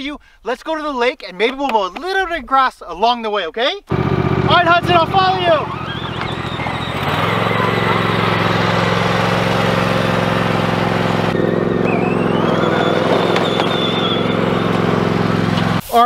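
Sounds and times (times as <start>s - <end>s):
riding lawn mower engine running: 3.9s - 15.8s.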